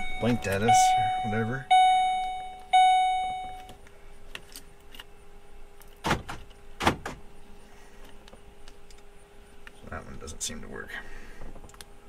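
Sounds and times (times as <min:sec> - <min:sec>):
car electronic chime: 0:00.0 - 0:03.7
faint steady hum: 0:00.0 - 0:12.0.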